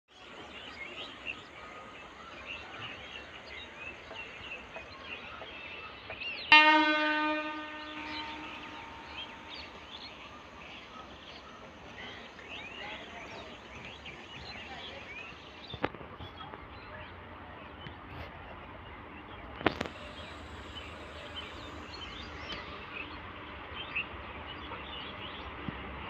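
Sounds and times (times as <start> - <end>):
birds chirping: 0.1 - 17.9
train horn blast: 6.5 - 9.9.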